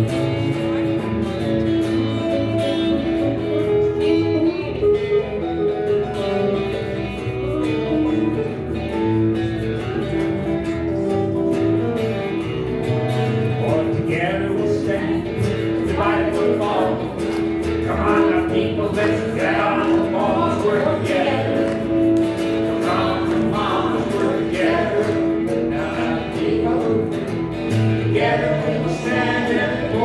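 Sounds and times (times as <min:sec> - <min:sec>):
electric bass and guitars playing: 0:00.0 - 0:30.0.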